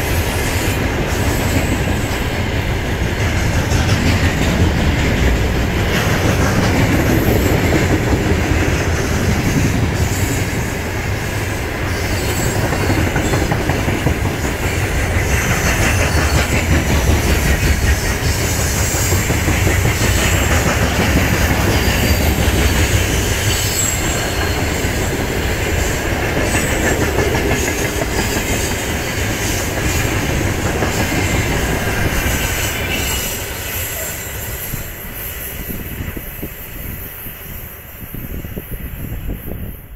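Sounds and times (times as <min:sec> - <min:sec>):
high-pitched wheel squeal: 0:21.9 - 0:25.0.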